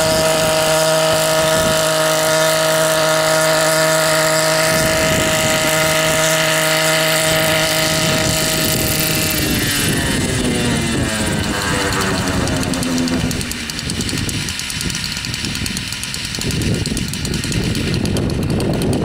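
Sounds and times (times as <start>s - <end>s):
helicopter engine and rotors: 0.0s - 19.0s.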